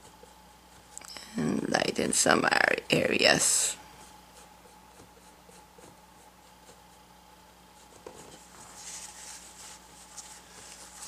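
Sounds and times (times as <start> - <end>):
paintbrush brushing on board: 7.8 - 11.0.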